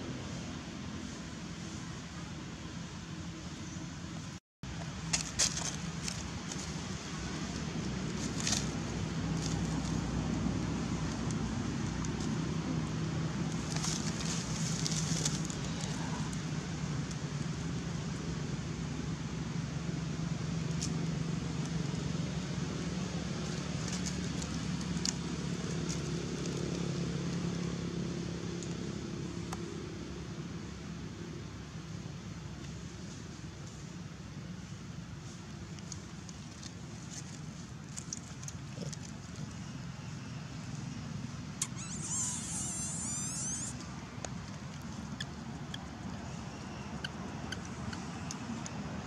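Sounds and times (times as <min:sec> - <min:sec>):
dry leaves crackling: 0:04.9 - 0:18.8, 0:19.9 - 0:29.3, 0:33.0 - 0:49.0
faint ticks and rustles: 0:32.6 - 0:39.9.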